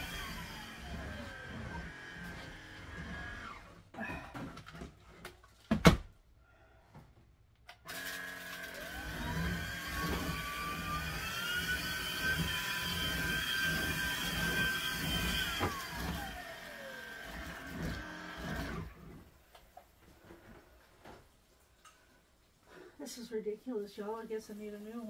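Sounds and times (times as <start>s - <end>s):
stick vacuum motor whine: 0.0s - 3.8s, 7.9s - 19.2s.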